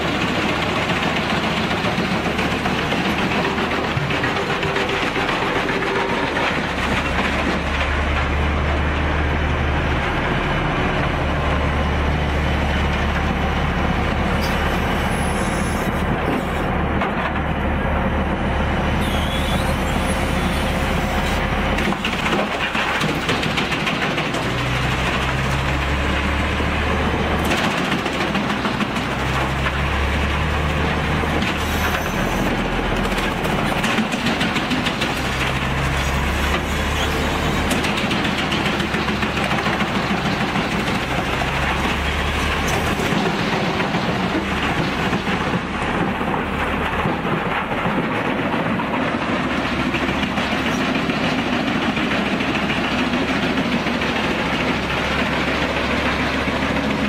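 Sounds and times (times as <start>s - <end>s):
heavy machinery running: 0.0s - 57.0s
wood cracking and splintering: 19.4s - 51.2s.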